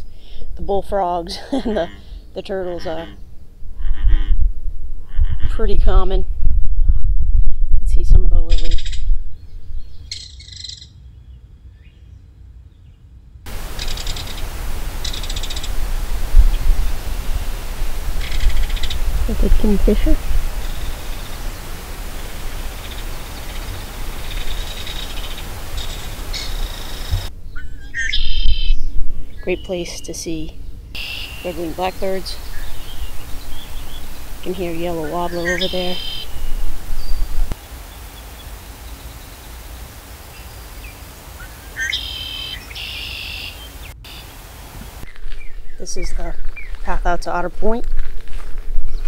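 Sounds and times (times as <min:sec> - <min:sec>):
outdoor hiss: 0:00.0 - 0:03.2, 0:13.5 - 0:27.3, 0:29.4 - 0:47.0
songbird singing with buzzy trill: 0:08.5 - 0:44.4
kingfisher rattling call: 0:13.6 - 0:15.8, 0:18.2 - 0:19.1, 0:31.0 - 0:36.5
faint bird chirps: 0:13.6 - 0:16.7, 0:20.6 - 0:30.4, 0:31.0 - 0:39.6, 0:40.2 - 0:44.4
low rumble: 0:14.4 - 0:29.5.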